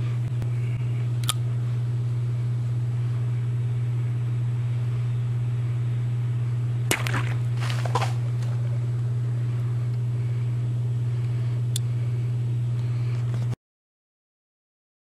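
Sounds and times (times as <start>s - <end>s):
steady low hum: 0.0s - 13.6s
knife slashing plastic bottle: 6.9s - 8.2s.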